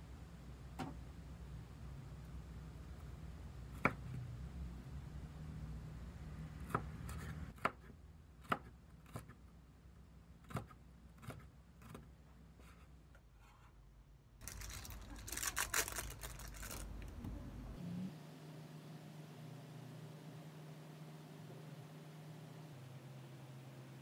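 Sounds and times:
plastic wrapper crinkling: 0:14.4 - 0:17.3.

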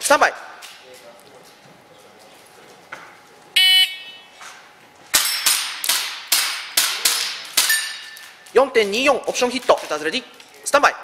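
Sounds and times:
airsoft pistol shots: 0:05.1 - 0:08.0
pellets ringing on steel plates: 0:07.6 - 0:08.3.

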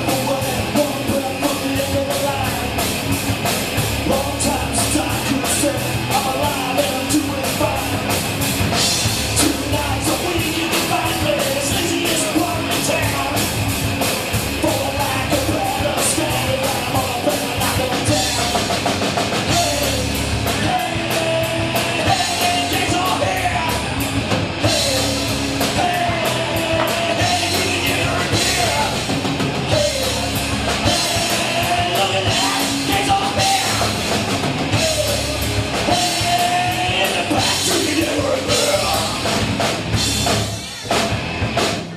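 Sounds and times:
driving drum kit: 0:00.0 - 0:41.9
rock song: 0:00.0 - 0:41.9
person singing: 0:09.4 - 0:13.5, 0:19.4 - 0:24.0, 0:24.6 - 0:29.1, 0:29.7 - 0:34.0, 0:34.7 - 0:39.4.

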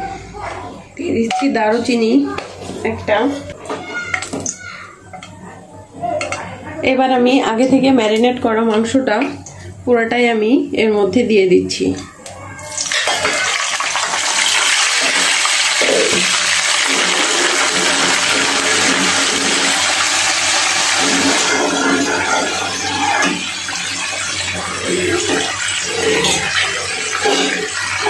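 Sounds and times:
meat sizzling in hot oil: 0:12.7 - 0:28.0.

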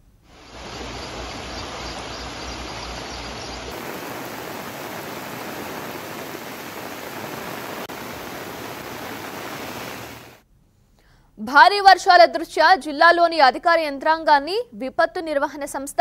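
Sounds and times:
rushing water of storm: 0:00.3 - 0:10.4.

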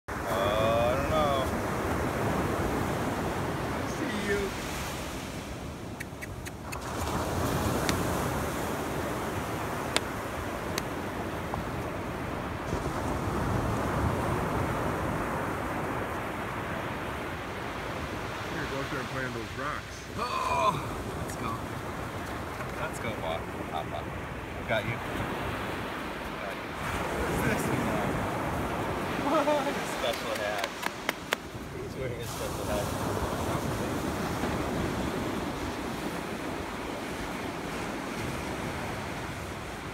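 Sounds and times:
ocean surf washing onto beach: 0:00.1 - 0:39.9
wind on microphone: 0:00.2 - 0:18.4.

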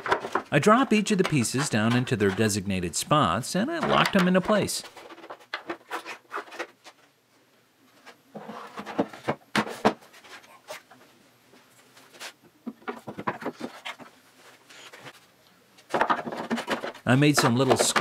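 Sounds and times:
wooden pieces knocking and clacking: 0:00.0 - 0:02.6, 0:03.7 - 0:06.8, 0:12.6 - 0:14.1, 0:15.9 - 0:18.0.

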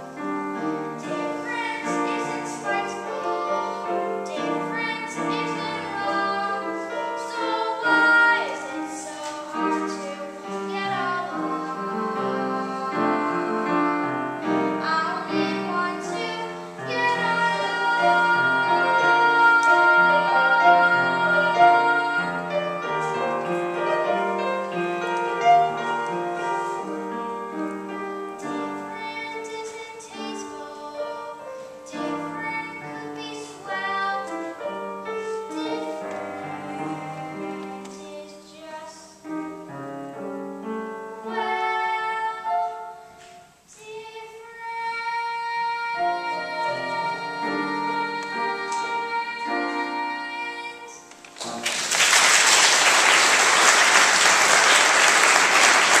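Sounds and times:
piano accompaniment: 0:00.0 - 0:56.0
boy singing: 0:01.0 - 0:23.4, 0:28.1 - 0:39.6, 0:41.2 - 0:51.2
audience applause: 0:51.4 - 0:56.0.

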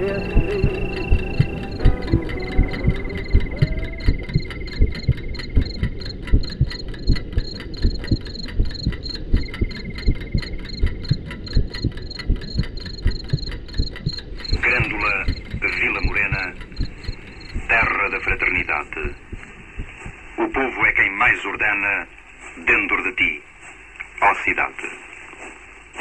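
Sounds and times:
high ticking and chirping tones: 0:00.0 - 0:20.4
low heartbeat-like thumps: 0:00.0 - 0:20.4
radio-like voice: 0:14.6 - 0:16.6, 0:17.7 - 0:19.2, 0:24.2 - 0:25.0.

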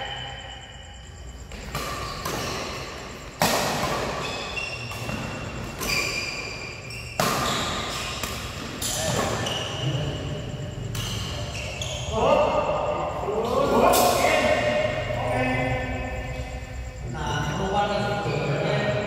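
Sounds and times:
sneakers squeaking on court floor: 0:01.2 - 0:12.9
rackets hitting shuttlecock: 0:01.5 - 0:09.4.

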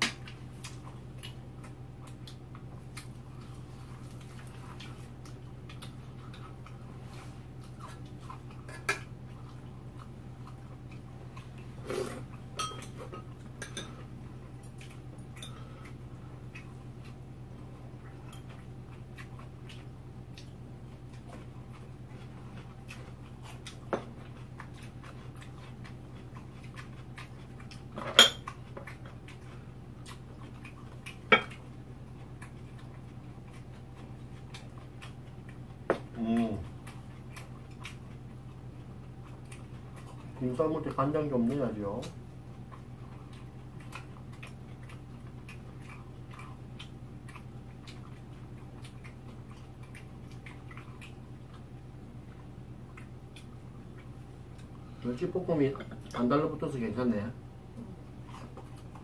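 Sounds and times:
steady low hum: 0:00.0 - 0:59.0
utensils clinking against bowls: 0:12.6 - 0:14.0.

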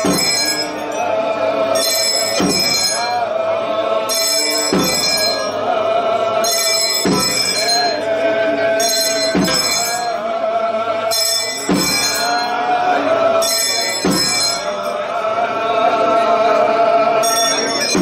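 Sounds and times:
brass hand bells clanging: 0:00.0 - 0:03.3, 0:04.1 - 0:05.7, 0:06.4 - 0:08.2, 0:08.8 - 0:10.3, 0:11.1 - 0:12.8, 0:13.4 - 0:15.3, 0:17.2 - 0:18.0
voices chanting: 0:00.0 - 0:18.0.

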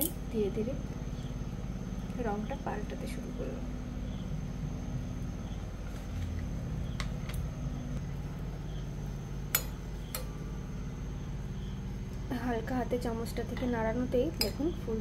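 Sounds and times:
steady low hum: 0:00.0 - 0:15.0
spoon clinking on saucepan: 0:14.4 - 0:14.7.

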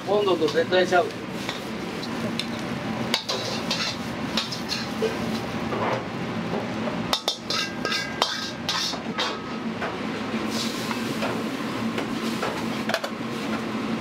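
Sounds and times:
metal ladle scraping a wok: 0:03.2 - 0:05.2, 0:07.2 - 0:09.0.

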